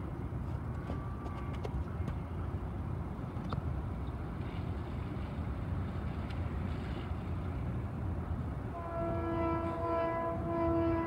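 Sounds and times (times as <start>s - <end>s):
train rumbling on tracks: 0.0s - 11.0s
train horn chord: 8.7s - 11.0s.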